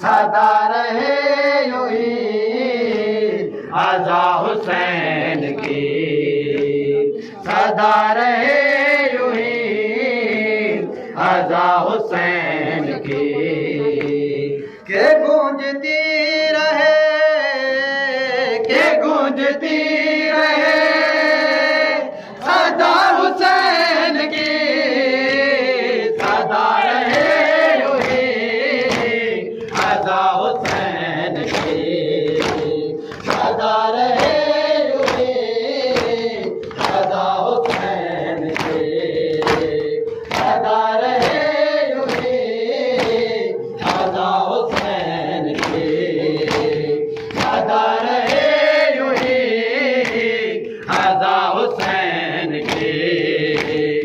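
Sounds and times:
men chanting in unison: 0.0 - 54.0
chest-beating slaps: 25.2 - 49.4, 50.0 - 52.0, 52.6 - 54.0.

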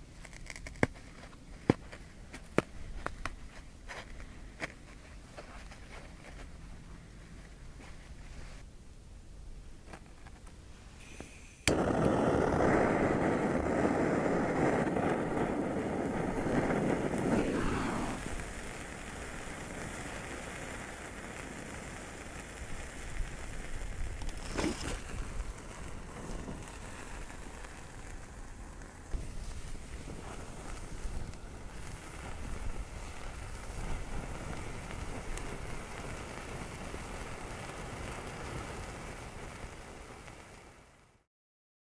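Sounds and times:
foam burning: 0.0 - 41.3
sparklers fizzing: 11.0 - 41.3.

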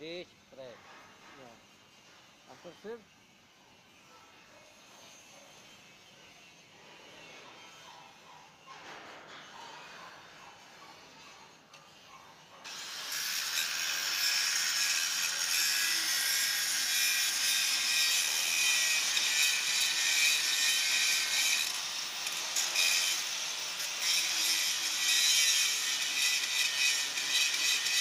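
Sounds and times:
angle grinder grinding steel: 11.6 - 28.0.

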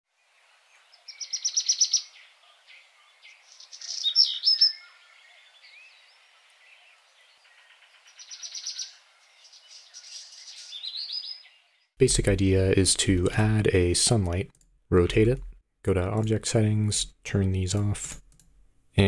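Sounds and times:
birds chirping: 0.1 - 12.0
bird trilling: 1.1 - 2.3, 3.2 - 6.1, 7.5 - 11.6.

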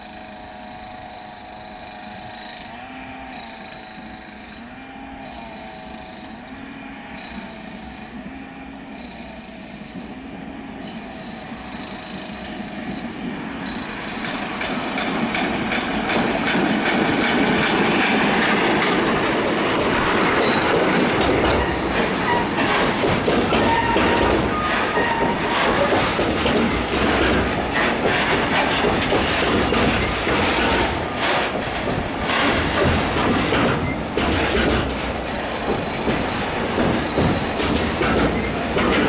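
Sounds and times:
wheel squeals: 0.0 - 10.2, 10.8 - 39.0
diesel locomotive passing: 0.0 - 39.0
wagon wheels on rails: 10.9 - 39.0.

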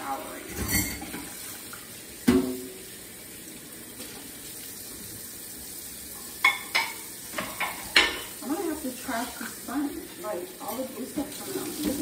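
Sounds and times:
dishes clinking: 0.5 - 1.3, 6.2 - 8.4
tap running into a sink: 0.5 - 2.8.

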